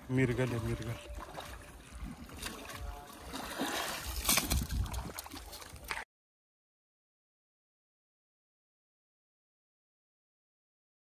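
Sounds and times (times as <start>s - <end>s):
river water splashing: 0.0s - 6.0s
wind rumble on microphone: 4.1s - 6.0s.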